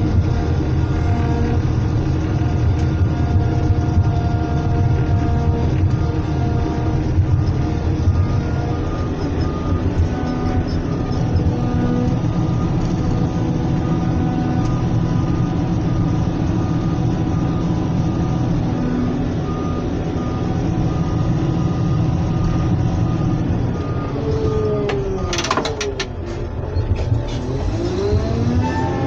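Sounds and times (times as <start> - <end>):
diesel engine running: 0.0 - 29.0
intermittent beeping tone: 5.9 - 27.0.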